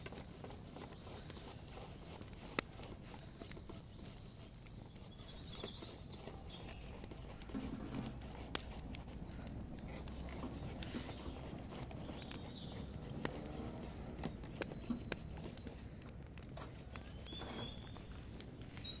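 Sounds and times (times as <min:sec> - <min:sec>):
sticks clicking and knocking: 0:06.9 - 0:18.8.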